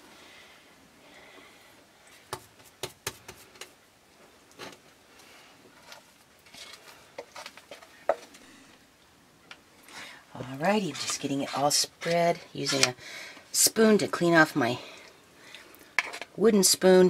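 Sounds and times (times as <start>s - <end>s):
wooden spoon scraping a bowl: 10.6s - 13.0s, 16.0s - 16.4s.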